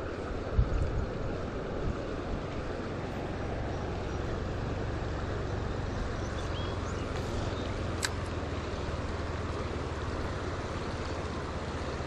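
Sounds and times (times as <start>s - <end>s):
wind on microphone: 0.0s - 2.8s
creek water rushing: 0.0s - 12.0s.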